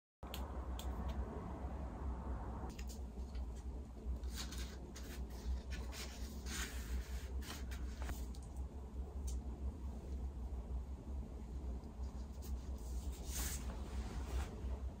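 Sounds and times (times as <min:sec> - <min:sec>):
steady low hum: 0:00.2 - 0:15.0
paper rustling and scraping: 0:04.2 - 0:08.2.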